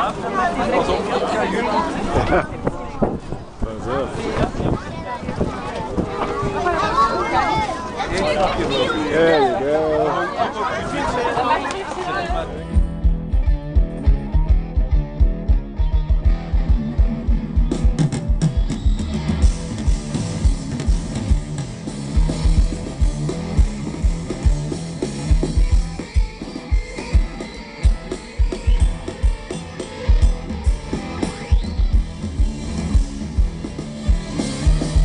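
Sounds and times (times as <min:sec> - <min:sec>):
electric guitar: 0:12.4 - 0:35.0
drum kit with kick drum: 0:12.6 - 0:35.0.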